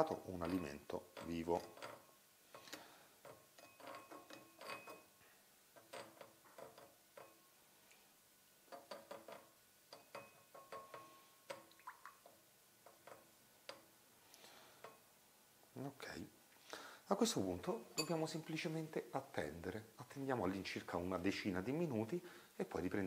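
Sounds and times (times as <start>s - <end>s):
metal spoon clinking and scraping pan: 0.1s - 5.2s, 17.9s - 18.3s.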